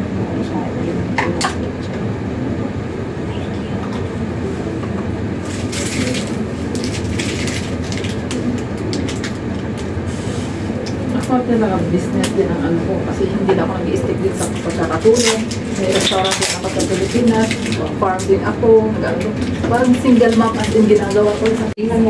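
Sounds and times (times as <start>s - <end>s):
low room rumble: 0.0s - 22.0s
plastic bottle crackling: 5.5s - 9.9s, 14.4s - 18.0s.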